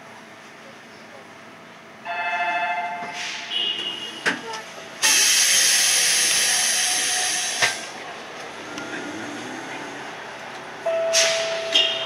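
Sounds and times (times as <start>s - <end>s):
bus running noise: 0.0s - 12.0s
compressed air hissing: 5.0s - 7.9s.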